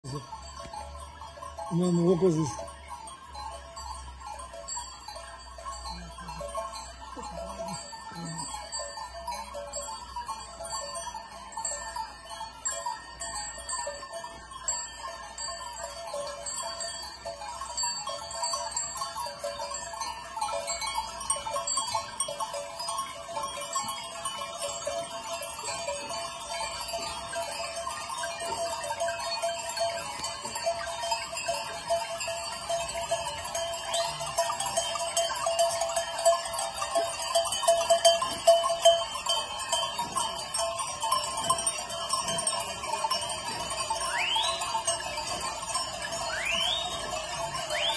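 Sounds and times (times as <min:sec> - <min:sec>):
animal bells jangling: 0:00.0 - 0:47.9
sheep and goats bleating: 0:06.0 - 0:08.7.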